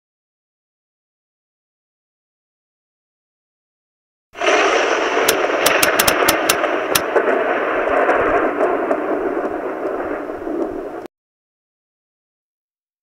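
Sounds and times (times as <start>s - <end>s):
sharp cracks: 4.4s - 11.1s
steady rushing noise: 4.4s - 11.1s.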